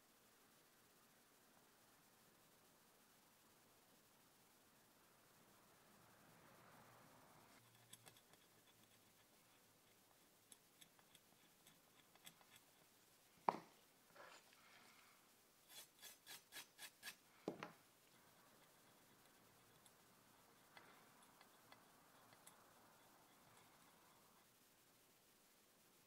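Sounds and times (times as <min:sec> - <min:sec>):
pick scratching stencil: 0:07.6 - 0:12.9, 0:15.7 - 0:17.2, 0:18.1 - 0:24.5
toothbrush scrubbing on metal: 0:07.6 - 0:12.9, 0:15.7 - 0:17.2, 0:18.1 - 0:24.4.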